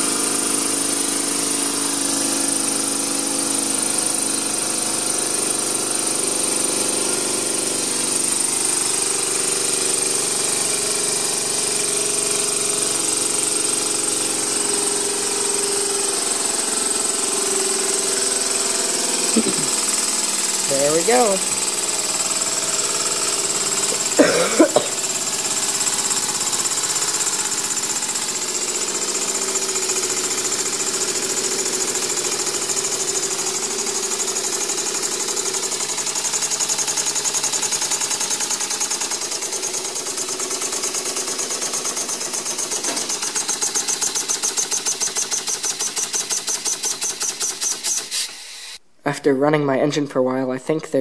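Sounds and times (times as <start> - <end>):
steam engine exhaust puffs: 39.4 - 48.8
hiss of escaping steam: 47.9 - 48.8.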